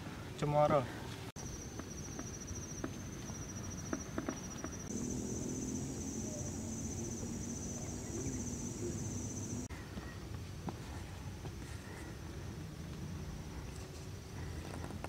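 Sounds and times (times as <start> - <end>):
higher insect trilling: 1.4 - 9.7
insects trilling: 1.4 - 10.3
faint low hum: 4.9 - 15.0.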